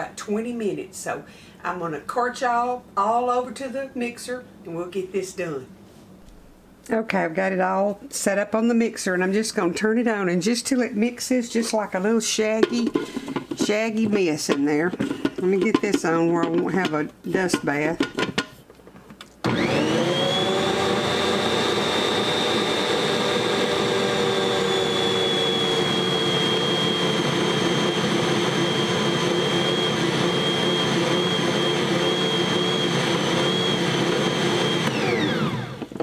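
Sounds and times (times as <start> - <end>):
stand mixer motor whining: 19.4 - 36.0.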